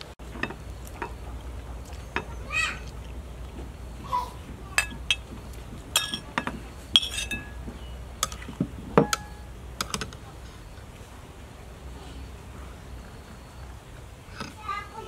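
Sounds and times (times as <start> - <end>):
metal spoon clinking on ceramic: 5.9 - 7.6.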